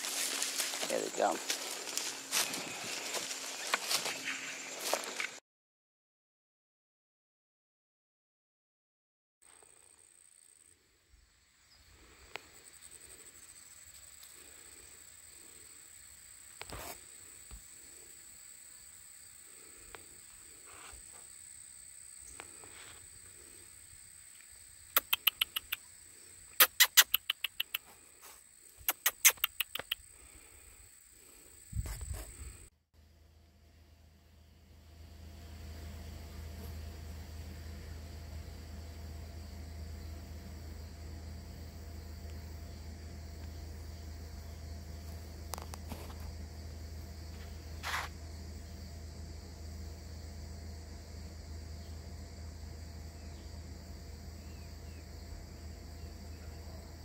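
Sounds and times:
crickets chirping: 0.0 - 5.4, 9.5 - 57.0
high insect drone: 0.0 - 5.4, 9.5 - 57.0
man making clicking calls: 24.9 - 25.9, 26.5 - 27.9, 28.8 - 30.0
low steady rumble: 31.8 - 57.0.

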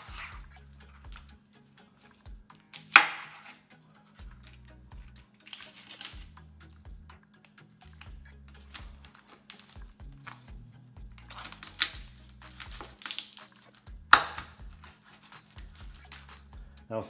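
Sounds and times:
background music with bass line: 0.0 - 17.0
knife cracking lobster shells: 2.7 - 6.4, 7.4 - 10.5, 11.2 - 16.5.

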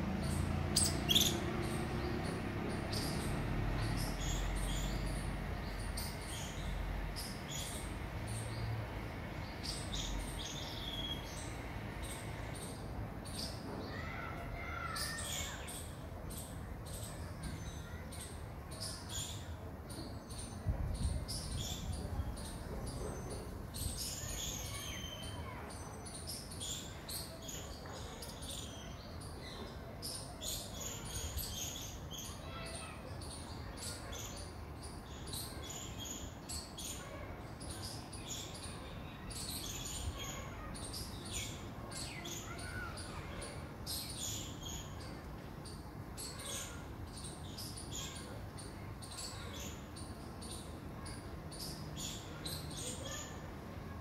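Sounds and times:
high chirping calls: 0.2 - 8.7.

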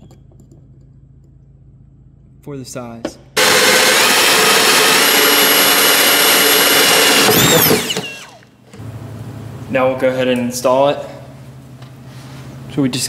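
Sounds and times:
cordless drill cutting plastic: 3.4 - 8.5.

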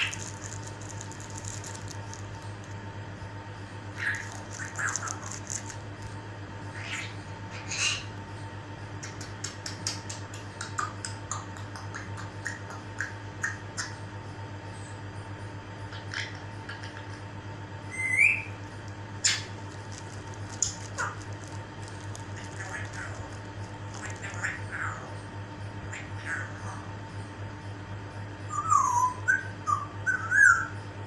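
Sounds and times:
parrot squawks: 0.0 - 0.4, 3.9 - 5.6, 6.7 - 8.1, 17.9 - 18.6, 19.2 - 19.6, 20.6 - 21.3, 22.2 - 25.1, 25.9 - 26.8
parrot clicks and chirps: 4.0 - 6.1, 9.0 - 14.0, 18.0 - 24.9
parrot rising whistle: 17.9 - 18.6.

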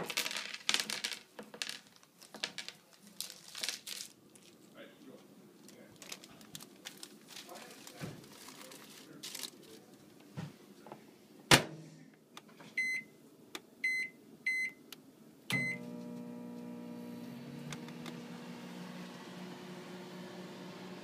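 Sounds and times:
paper rustling: 0.0 - 4.7, 5.6 - 10.0
keypad beeps: 12.8 - 13.1, 13.8 - 14.8, 15.6 - 15.8
microwave oven humming: 15.5 - 21.0.

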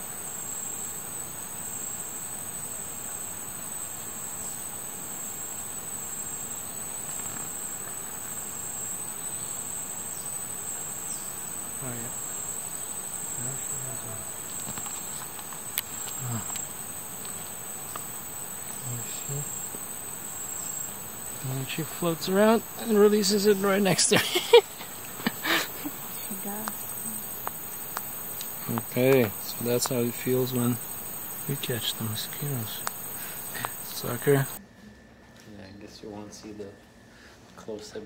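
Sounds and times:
insect chorus: 0.0 - 38.0.

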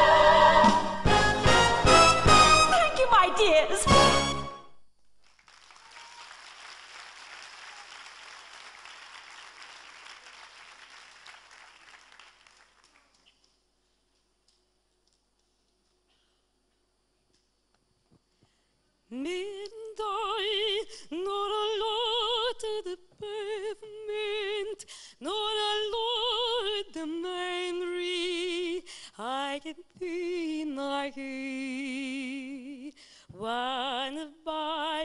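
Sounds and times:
woman singing with vibrato: 0.0 - 2.0, 19.1 - 35.0
singer breathing: 24.8 - 25.2, 28.8 - 29.2, 33.0 - 33.3.

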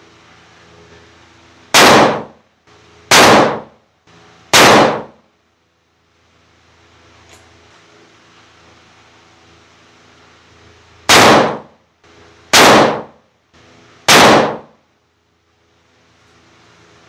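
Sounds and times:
rifle shots ringing: 1.7 - 2.4, 3.1 - 3.8, 4.5 - 5.2, 11.1 - 11.7, 12.5 - 13.2, 14.1 - 14.7.

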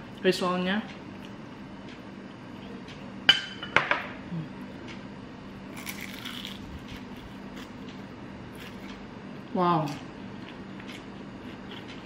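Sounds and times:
crunchy bite of fried food: 5.7 - 7.8.

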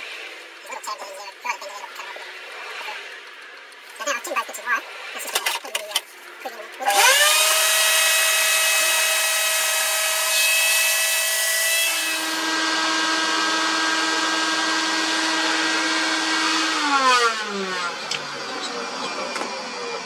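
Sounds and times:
electric power tool motor running: 6.3 - 20.0.

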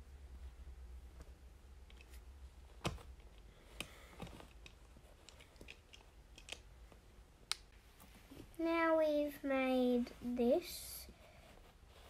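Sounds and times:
plastic bricks clicking: 3.3 - 6.7.

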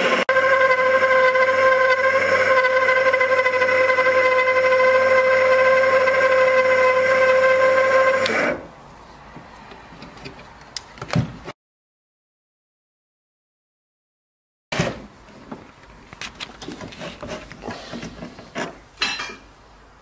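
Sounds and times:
lathe motor whine: 0.0 - 8.7.

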